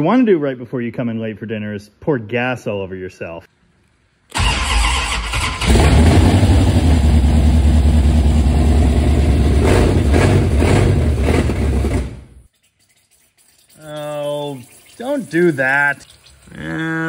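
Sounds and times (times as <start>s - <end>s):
car engine cranking: 4.3s - 6.7s
loud car engine running: 5.7s - 12.3s.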